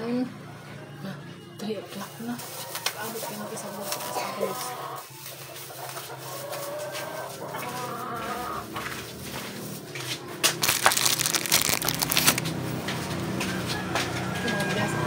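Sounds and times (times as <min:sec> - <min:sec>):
chicken clucking: 0:02.6 - 0:09.0
plastic gloves crinkling: 0:10.5 - 0:12.5.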